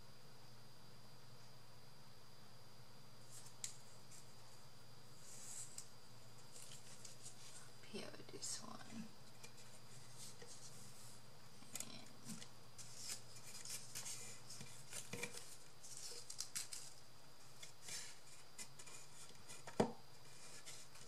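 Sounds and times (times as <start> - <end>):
paper and fabric crinkling: 5.2 - 7.8, 8.9 - 21.0.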